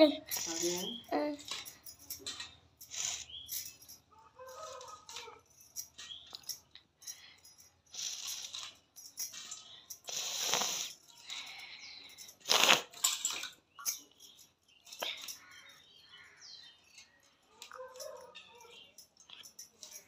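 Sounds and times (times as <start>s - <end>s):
steel plates and bowls clinking: 7.5s - 15.9s.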